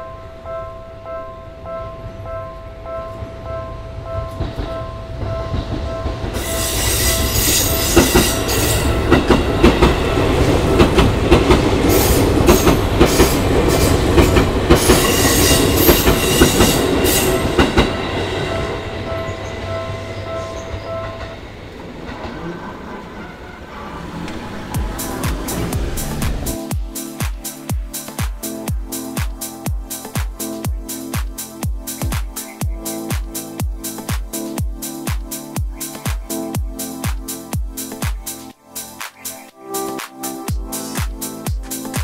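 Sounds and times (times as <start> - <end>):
level-crossing alarm bell ringing: 0.0 - 21.5
train wheels clacking over rail joints: 5.5 - 18.0.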